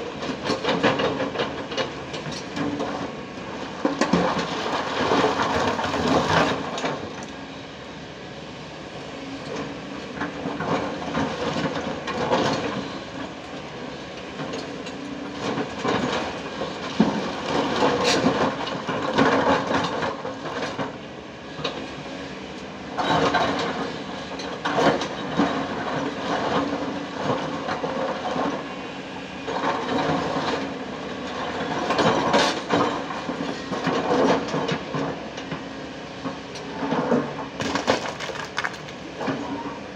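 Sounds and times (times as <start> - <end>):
rocks clattering: 37.6 - 39.0.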